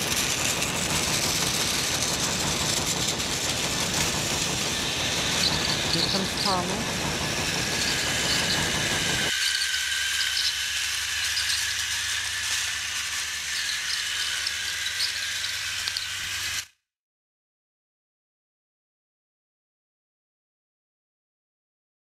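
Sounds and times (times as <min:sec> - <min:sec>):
toy train motor whining: 0:00.0 - 0:16.8.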